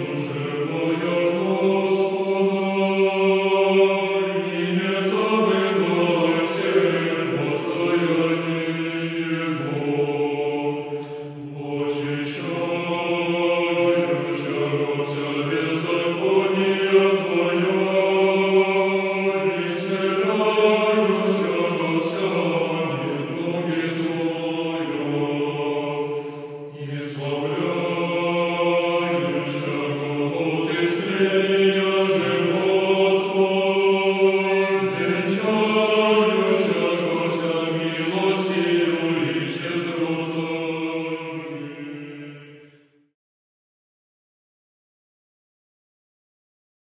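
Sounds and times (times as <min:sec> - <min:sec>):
choir chanting: 0:00.0 - 0:43.0
singers breathing: 0:26.0 - 0:26.7.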